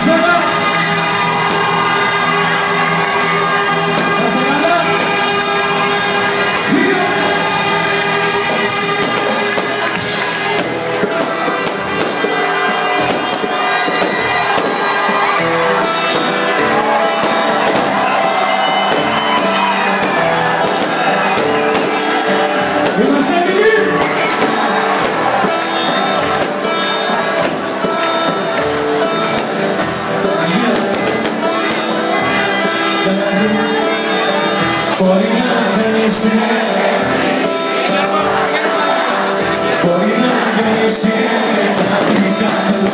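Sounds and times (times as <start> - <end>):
crowd noise: 0.0 - 42.9
live band music: 0.0 - 42.9
person singing: 30.3 - 42.9.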